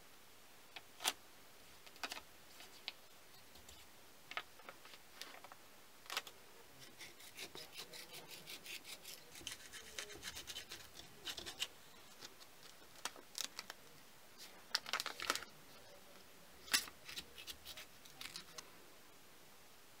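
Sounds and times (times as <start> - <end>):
paper crackles: 9.4 - 13.8, 14.4 - 15.5.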